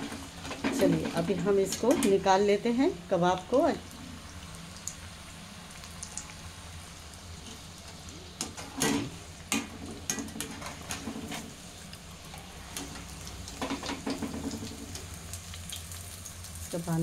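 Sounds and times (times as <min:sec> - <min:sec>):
skimmer scraping metal pan: 0:00.0 - 0:02.3, 0:08.4 - 0:11.7
deep-frying sizzle in hot oil: 0:00.0 - 0:17.0.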